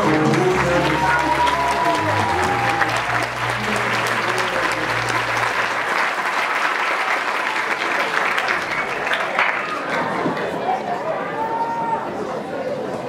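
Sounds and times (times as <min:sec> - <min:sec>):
dance music: 0:00.0 - 0:06.3
audience applauding: 0:00.0 - 0:10.8.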